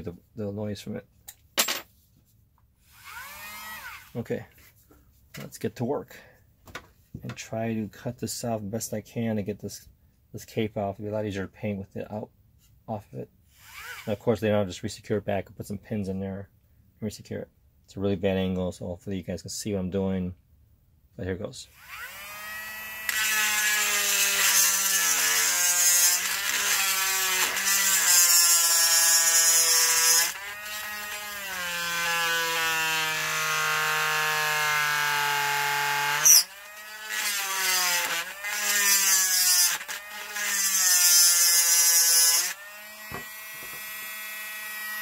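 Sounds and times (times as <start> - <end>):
electric die grinder whining: 2.9 - 4.2, 13.6 - 14.1, 21.8 - 45.0.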